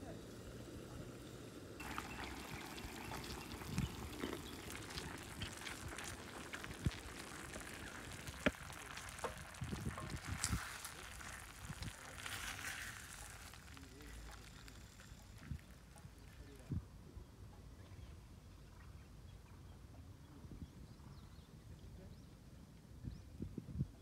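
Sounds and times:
meat sizzling in a frying pan: 0:01.8 - 0:15.8.

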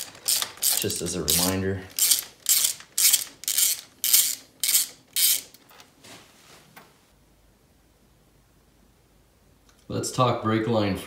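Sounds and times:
ratchet wrench clicking: 0:00.0 - 0:05.6.

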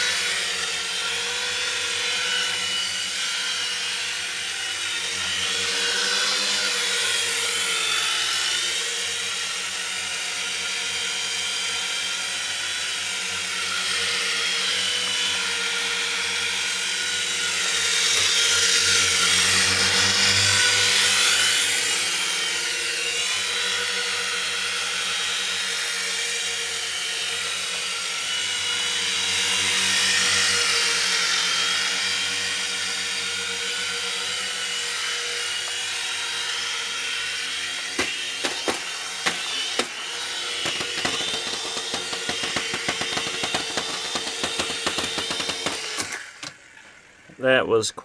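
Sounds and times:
micro helicopter whirring: 0:00.0 - 0:47.9
rotor blades clicking on wall: 0:37.7 - 0:47.0.

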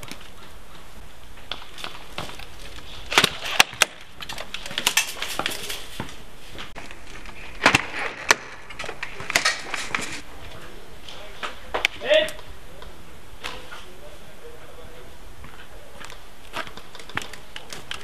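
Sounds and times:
pellets striking wood: 0:01.4 - 0:06.1, 0:06.7 - 0:10.2.

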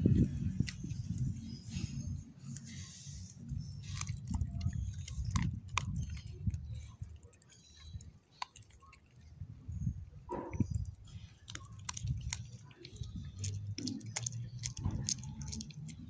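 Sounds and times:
dog chewing and crunching bone: 0:00.0 - 0:16.0
bone cracking: 0:03.9 - 0:06.7, 0:07.3 - 0:09.1, 0:11.4 - 0:16.0.

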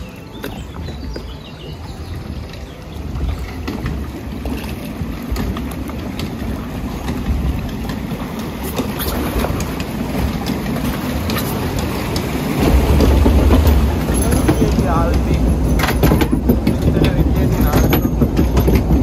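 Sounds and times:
water rushing along flume trough: 0:00.0 - 0:19.0
water splashes: 0:00.0 - 0:19.0.

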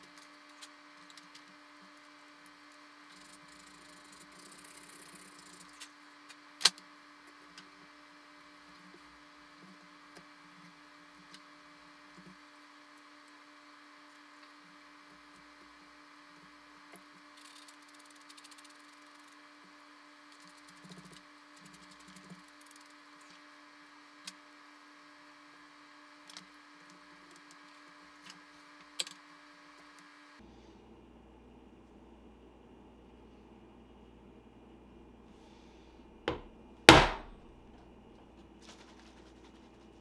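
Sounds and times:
fine scratching: 0:38.6 - 0:40.0.

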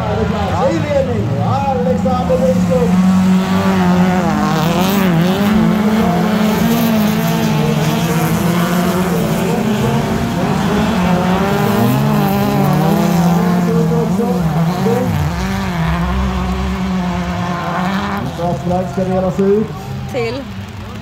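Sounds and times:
race car engines revving: 0:00.0 - 0:21.0.

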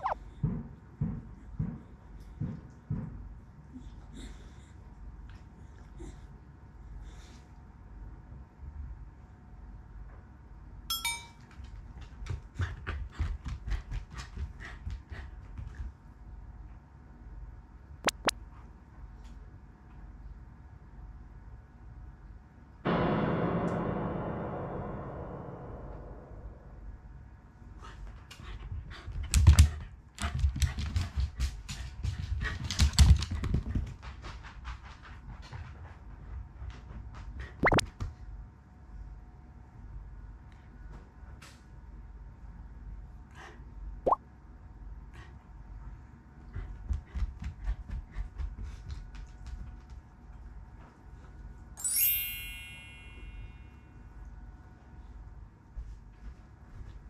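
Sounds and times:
short metallic clink: 0:10.9 - 0:11.4.

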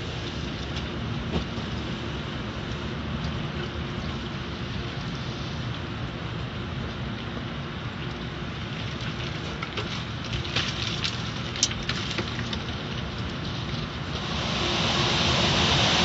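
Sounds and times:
car wash machinery hum: 0:00.0 - 0:16.0
water spraying on car: 0:08.4 - 0:16.0.

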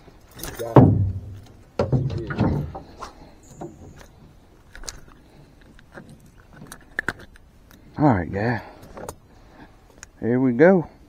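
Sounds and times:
small clicks of fishing tackle: 0:04.0 - 0:07.8.

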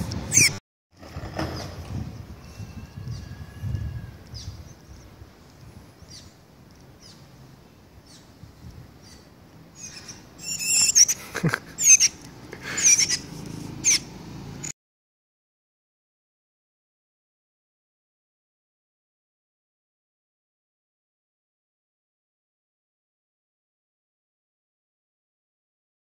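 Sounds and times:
loud warbling bird calls: 0:00.3 - 0:00.6, 0:09.0 - 0:14.1.

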